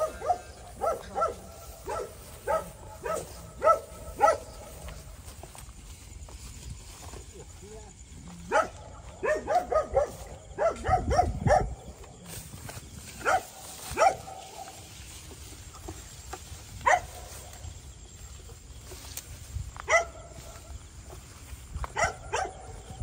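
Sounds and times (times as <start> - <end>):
dog barking: 0.0 - 4.6, 8.5 - 11.8, 13.2 - 14.8, 16.8 - 17.1, 19.9 - 20.3, 22.0 - 22.7.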